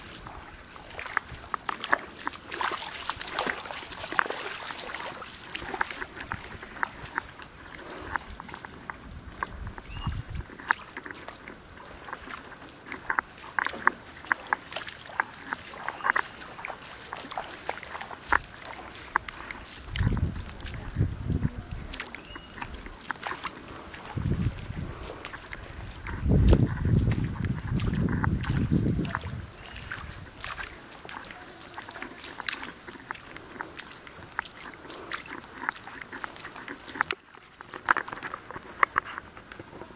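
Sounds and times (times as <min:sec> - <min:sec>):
feet wading through water: 0:00.0 - 0:39.9
wind rumble on microphone: 0:05.5 - 0:12.4, 0:18.3 - 0:31.2.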